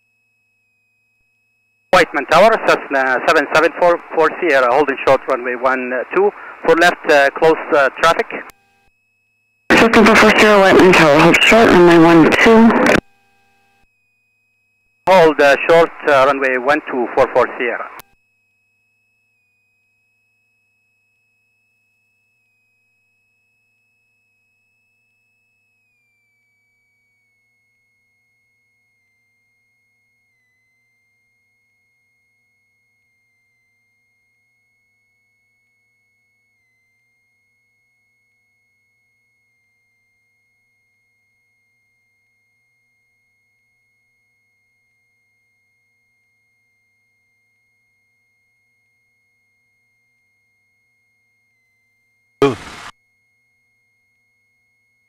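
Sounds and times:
high-pitched whine: 0:01.9 - 0:08.9, 0:09.7 - 0:13.0, 0:52.4 - 0:52.9.

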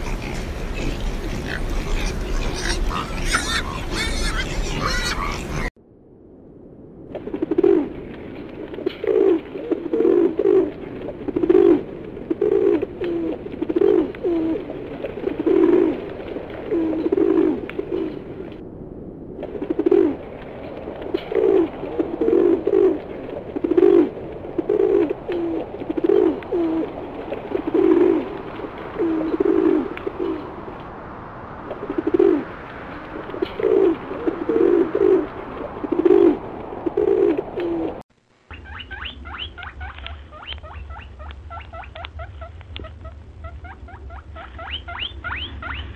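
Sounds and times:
pigeons cooing: 0:00.0 - 0:05.7, 0:08.8 - 0:16.0, 0:16.7 - 0:18.3, 0:21.2 - 0:30.5, 0:31.8 - 0:32.5, 0:33.3 - 0:38.0.

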